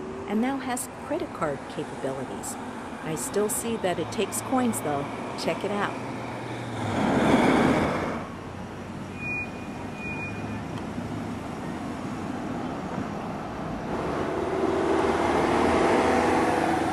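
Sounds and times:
vehicles passing: 0.0s - 16.9s
short high beeps: 9.2s - 10.6s.

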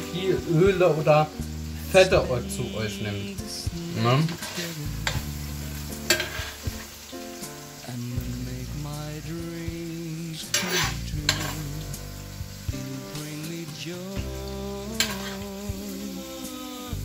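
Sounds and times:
meat sizzling in a frying pan: 0.0s - 17.0s
soft background music: 0.0s - 17.0s
spoons scraping a pan: 3.9s - 7.0s, 10.4s - 11.8s, 14.9s - 15.6s.

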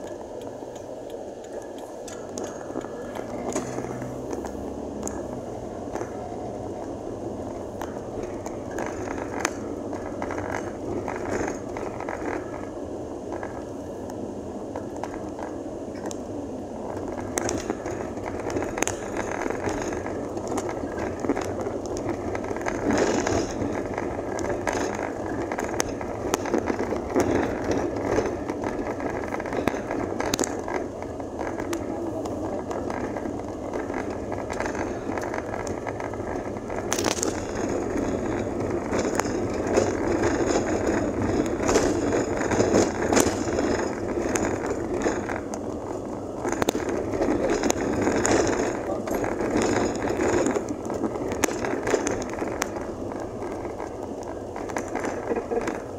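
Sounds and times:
wheels rattling over dirt road: 0.0s - 55.9s
sharp clicks and knocks: 16.9s - 55.9s.

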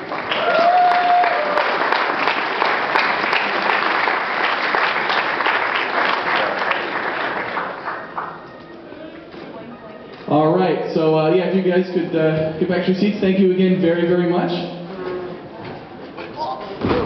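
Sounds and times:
audience applauding: 0.0s - 8.5s
cheering whoop: 0.3s - 1.8s.

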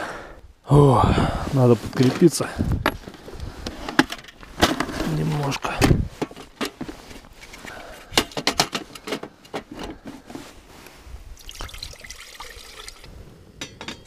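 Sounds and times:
camping stove knocks and clicks: 8.1s - 10.0s
water pouring into pot: 11.4s - 13.2s.

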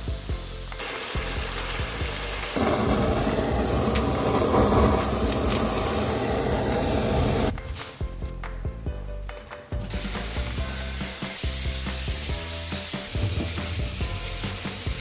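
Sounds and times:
chicken sizzling in a frying pan: 0.0s - 7.5s, 9.9s - 15.0s
blowtorch flame rushing: 2.6s - 7.5s.

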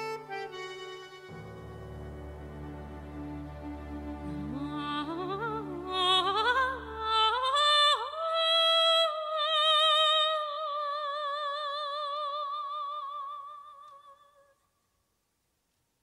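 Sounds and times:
backing music: 0.0s - 6.3s.

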